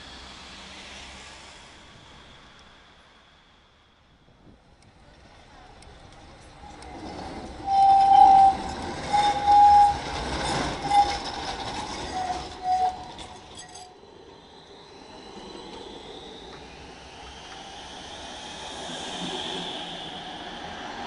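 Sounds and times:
tram running noise with whine: 0.0s - 21.0s
tram wheels clicking: 4.8s - 14.4s
tram wheels squealing: 6.4s - 21.0s.

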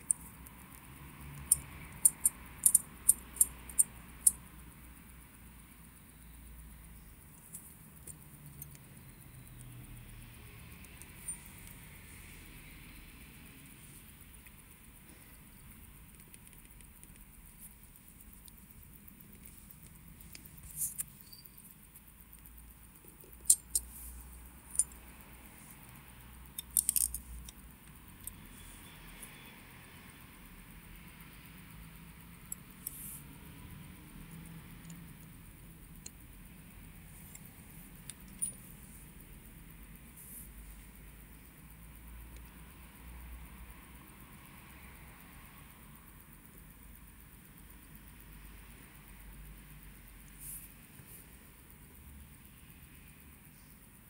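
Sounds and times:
small metallic clicks: 0.0s - 4.6s, 7.2s - 12.3s, 13.6s - 29.4s, 31.9s - 33.7s, 34.3s - 42.7s.

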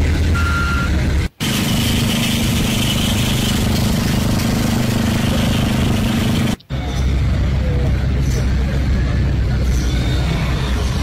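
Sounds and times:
heavy vehicles running: 0.0s - 11.0s
steady engine noise with low hum: 0.0s - 11.0s
reversing alarm beep: 0.4s - 1.0s.

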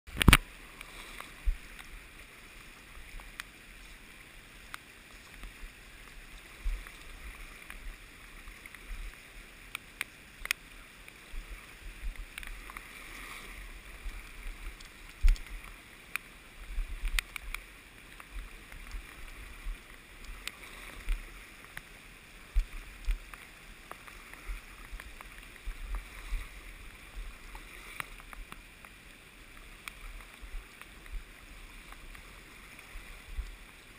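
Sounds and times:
river rushing over riffles: 0.1s - 33.9s.

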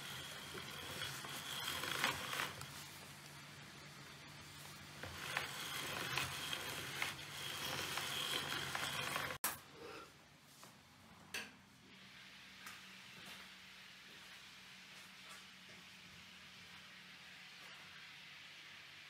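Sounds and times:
pasta machine whirring: 0.0s - 9.6s.

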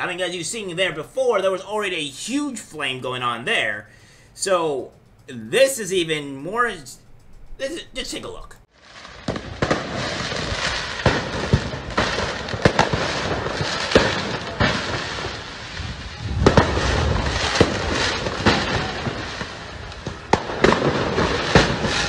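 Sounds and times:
sharp bangs and pops: 8.8s - 22.0s.

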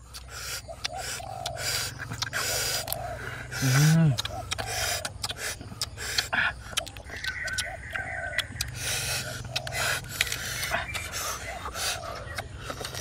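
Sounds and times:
breathy chewing: 0.0s - 13.0s
crab shell crunching: 9.5s - 11.1s.

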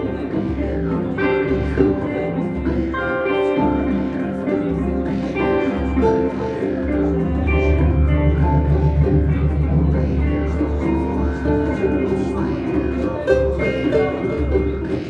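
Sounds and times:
ringing pitched notes: 2.8s - 15.0s
low sustained bass: 4.5s - 15.0s.

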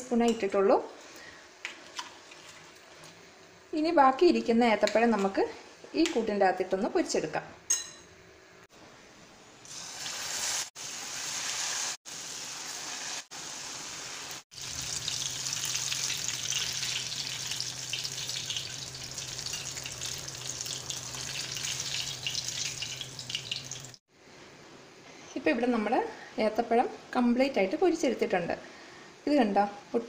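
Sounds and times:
fritters deep-frying in oil: 10.0s - 24.0s.

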